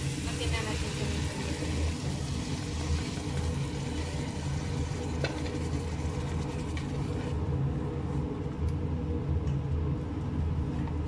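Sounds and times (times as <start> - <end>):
meat sizzling in a pot: 0.0 - 7.3
steady low hum: 0.0 - 11.0.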